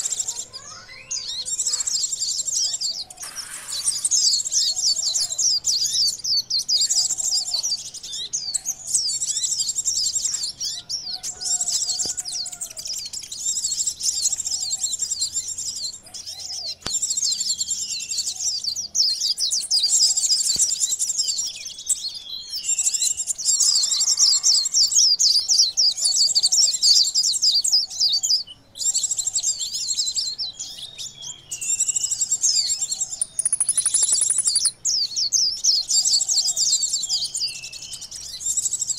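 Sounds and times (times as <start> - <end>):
sunbirds twittering: 0.0 - 38.9.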